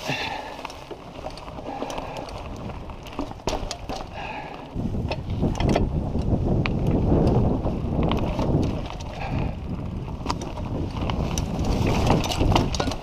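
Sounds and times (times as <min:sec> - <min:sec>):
bike clicking and rattling: 0:00.0 - 0:13.0
bike tyres on dirt: 0:00.0 - 0:13.0
wind rumbling on microphone: 0:00.0 - 0:13.0
bike knocking over log: 0:00.1 - 0:06.0, 0:10.2 - 0:13.0.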